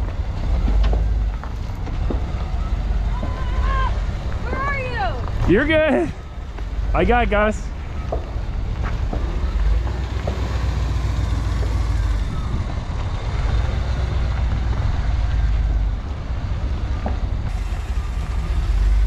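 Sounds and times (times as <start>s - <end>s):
truck engine rumbling: 0.0s - 19.0s.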